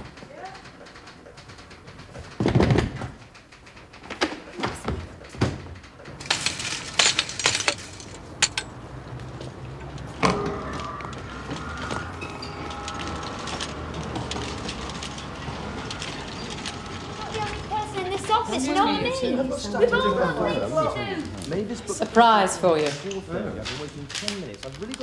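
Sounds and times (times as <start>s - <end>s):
shop background noise: 0.0s - 25.0s
paper rustling and flapping: 10.9s - 18.4s.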